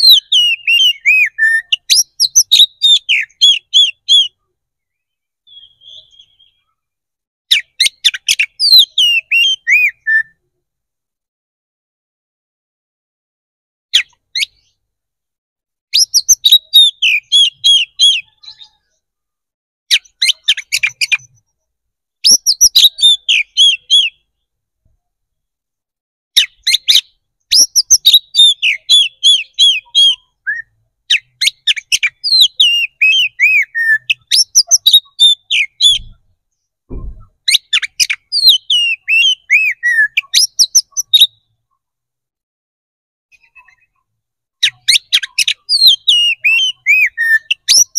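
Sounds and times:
bird singing rapid high notes: 0.0 - 6.8, 26.4 - 36.2, 37.5 - 41.5, 44.6 - 47.9.

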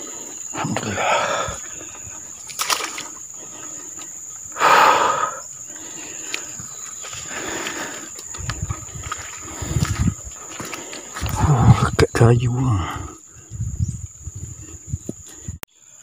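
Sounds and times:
water splashing: 0.6 - 4.6, 5.7 - 11.3.

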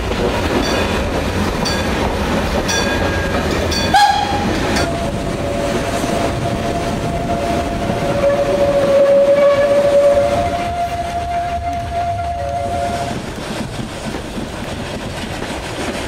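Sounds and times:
train running noise: 0.0 - 16.0
steam locomotive whistle: 3.9 - 13.2.

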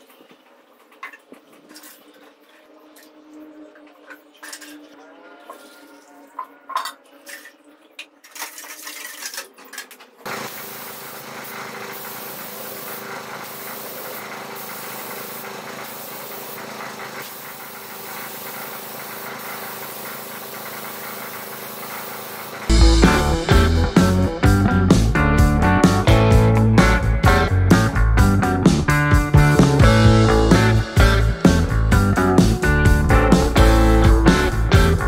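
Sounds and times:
spray gun air hiss: 10.3 - 23.3.

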